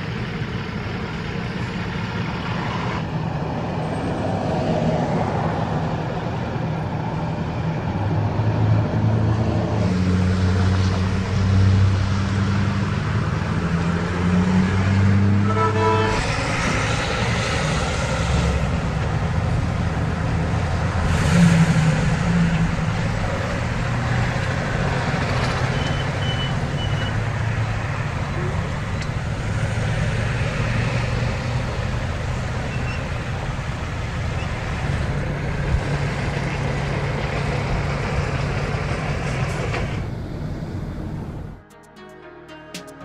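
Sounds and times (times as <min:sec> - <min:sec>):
highway traffic rumble: 0:00.0 - 0:41.7
short horn toot: 0:15.4 - 0:16.3.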